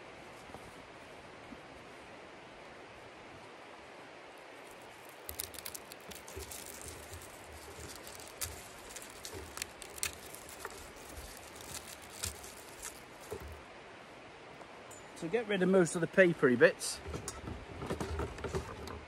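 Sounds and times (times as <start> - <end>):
outdoor hiss: 0.0 - 18.8
garlic skins crackling: 4.6 - 13.6.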